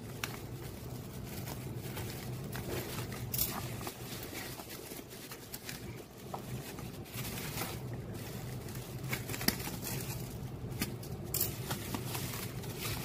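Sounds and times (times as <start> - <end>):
bubble-wrap bag crinkling: 0.0 - 13.0
steady low hum: 0.0 - 13.0.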